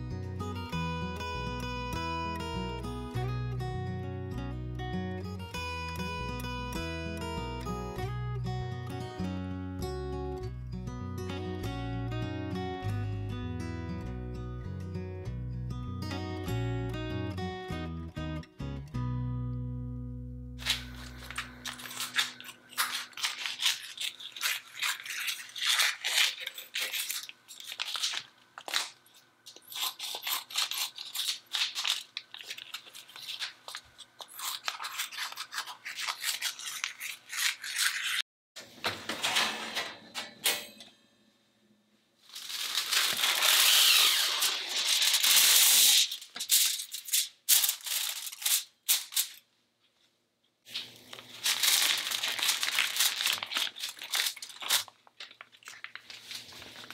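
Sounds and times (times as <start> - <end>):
plastic packaging crinkling: 20.6 - 38.2, 42.3 - 49.5, 50.7 - 56.9.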